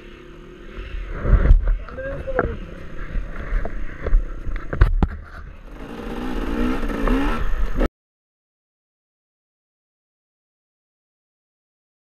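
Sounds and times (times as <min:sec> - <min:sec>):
motorcycle engine revving: 0:02.5 - 0:07.9.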